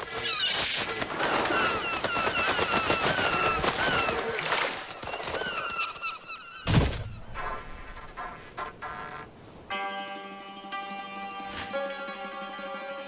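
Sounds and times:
wings flapping: 0:00.0 - 0:09.0
seagulls squawking: 0:00.2 - 0:09.4.

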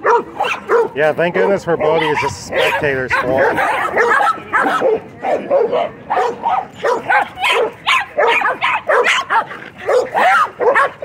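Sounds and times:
dogs barking: 0:00.0 - 0:11.0.

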